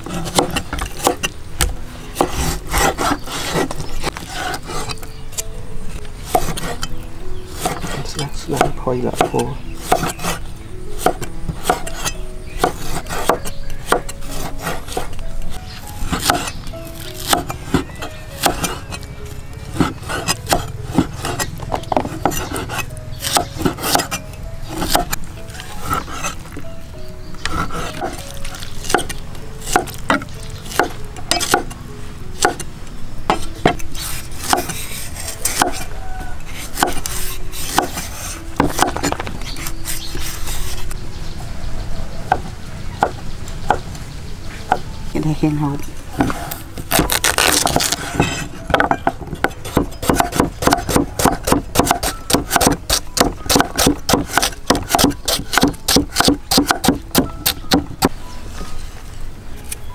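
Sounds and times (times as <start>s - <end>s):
cleavers chopping on wooden block: 0.0s - 4.9s, 6.3s - 6.8s, 7.6s - 10.4s, 11.0s - 15.1s, 16.1s - 16.5s, 17.2s - 19.0s, 19.8s - 24.2s, 24.8s - 25.2s, 28.8s - 31.8s, 32.4s - 32.6s, 34.4s - 34.8s, 35.5s - 35.9s, 36.6s - 39.7s, 46.2s - 58.1s
blade scraping: 2.1s - 5.5s, 6.2s - 19.1s, 19.8s - 26.6s, 46.2s - 57.0s.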